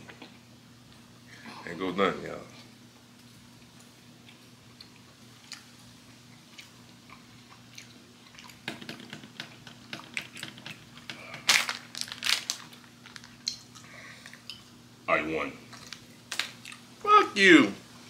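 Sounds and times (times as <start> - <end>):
person chewing food: 3.2 - 14.6.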